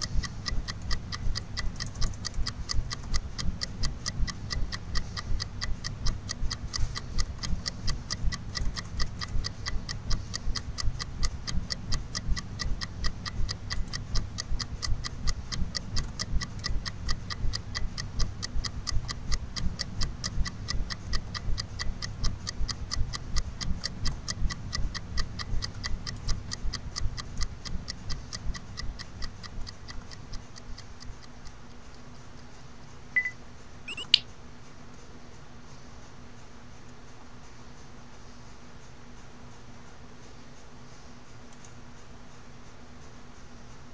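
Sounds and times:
fast even ticking: 0.0s - 31.8s, 33.2s - 34.2s
low steady hum: 0.0s - 34.3s
sharp click: 33.2s - 34.3s.

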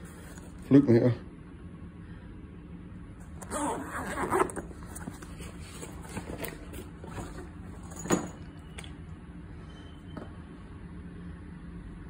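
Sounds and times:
zip pulled open: 3.4s - 5.0s.

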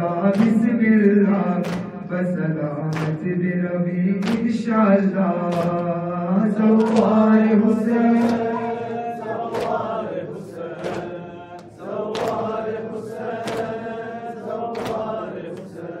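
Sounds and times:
men chanting: 0.0s - 16.0s
chest-beating slaps: 1.6s - 2.0s, 2.9s - 3.2s, 4.2s - 4.6s, 5.4s - 5.9s, 6.8s - 7.3s, 8.2s - 10.0s, 10.8s - 13.9s, 14.6s - 15.8s.

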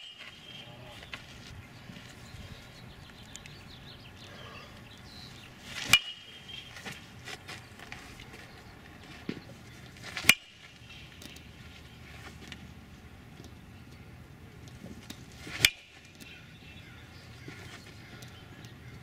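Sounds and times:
metal bat pinging on ball: 5.8s - 6.7s, 10.2s - 11.4s.

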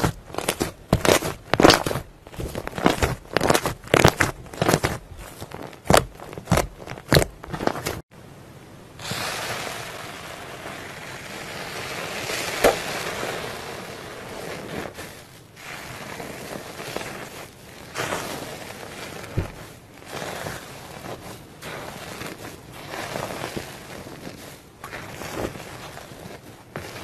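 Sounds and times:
comb raking through slime: 0.0s - 8.0s, 9.0s - 27.0s
slime squeezed with crackling pops: 9.0s - 15.0s.

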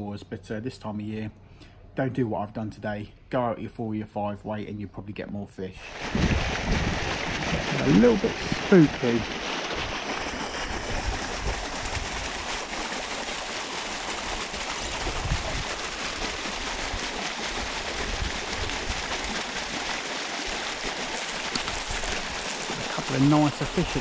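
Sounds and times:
wind buffeting microphone: 5.9s - 12.5s, 14.8s - 19.2s.

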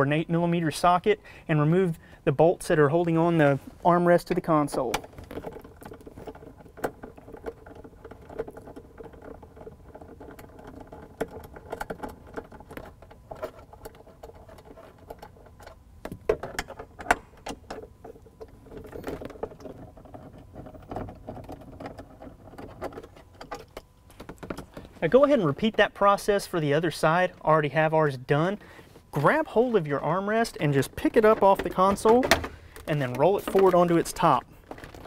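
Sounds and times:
tool clicking and scraping plastic: 4.3s - 25.9s, 30.6s - 35.0s.

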